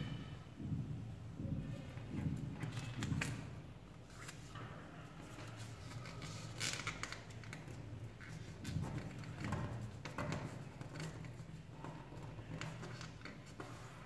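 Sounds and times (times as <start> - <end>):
paper money rustling and crinkling: 5.4 - 11.5.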